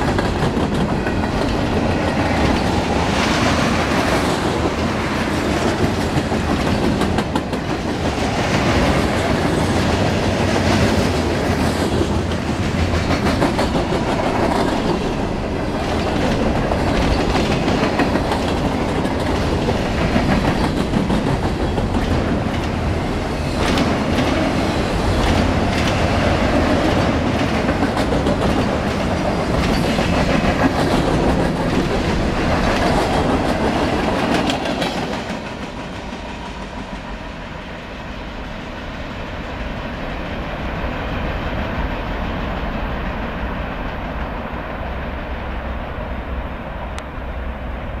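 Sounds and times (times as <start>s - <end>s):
freight train rumbling past: 0.0s - 48.0s
wheel clatter over rail joints: 11.0s - 36.0s.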